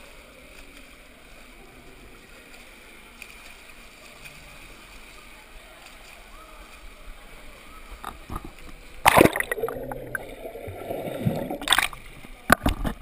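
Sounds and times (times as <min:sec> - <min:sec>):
pool water splashing: 0:00.0 - 0:13.0
muffled underwater gurgle: 0:08.0 - 0:13.0.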